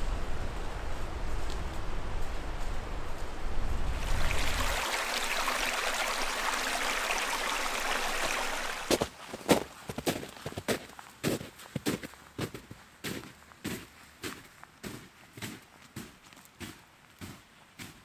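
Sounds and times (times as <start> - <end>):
wind buffeting microphone: 0.0 - 4.8
strong wind rushing through trees: 0.0 - 9.0
crunching footsteps: 8.9 - 18.0.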